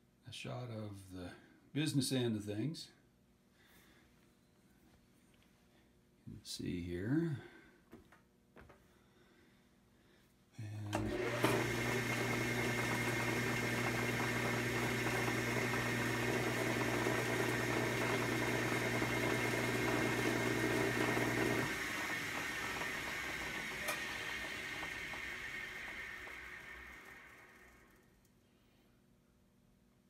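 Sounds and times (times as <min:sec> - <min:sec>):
lathe motor humming and whining: 0:11.0 - 0:28.0.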